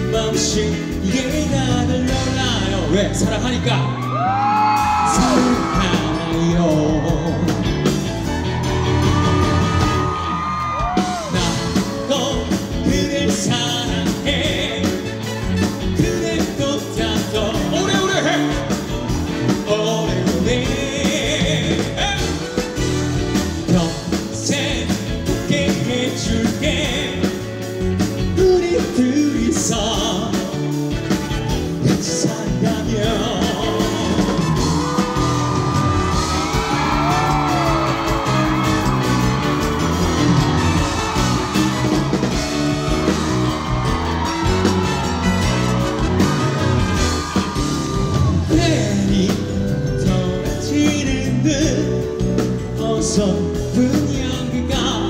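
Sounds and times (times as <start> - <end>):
person singing: 0.0 - 22.7, 23.3 - 30.9, 31.6 - 55.0
live rock band playing: 0.0 - 55.0.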